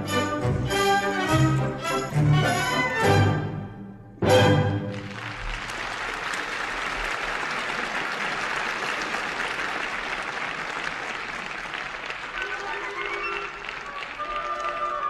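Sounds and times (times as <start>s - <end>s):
audience applauding: 4.7s - 15.0s.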